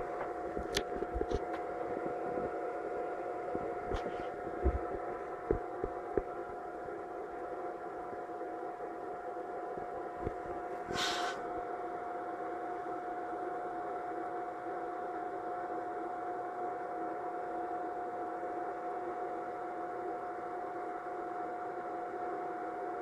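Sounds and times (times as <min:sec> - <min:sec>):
projector whirring hum: 0:00.0 - 0:23.0
short hiss: 0:10.9 - 0:11.4.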